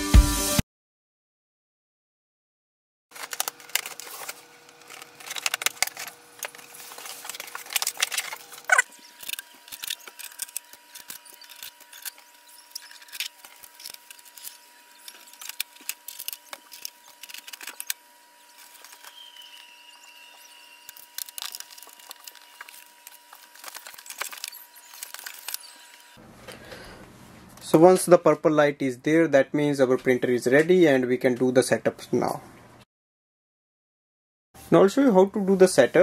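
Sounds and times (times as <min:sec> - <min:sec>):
blade slitting box tape: 0:03.2 - 0:19.7, 0:20.3 - 0:25.7
tape peeling off plastic: 0:03.2 - 0:26.0.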